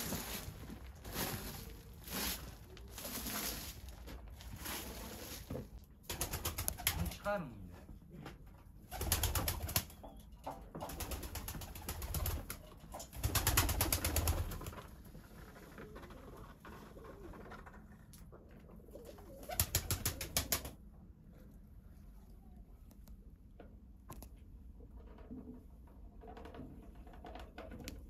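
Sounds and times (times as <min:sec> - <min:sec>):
pigeon wings clapping: 0:06.1 - 0:07.2, 0:08.9 - 0:10.0, 0:10.8 - 0:14.9, 0:19.3 - 0:20.8.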